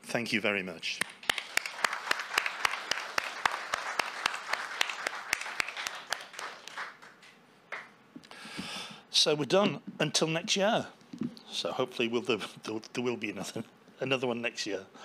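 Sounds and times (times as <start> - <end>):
audience clapping: 1.0 - 8.0
close hand claps: 1.0 - 8.0.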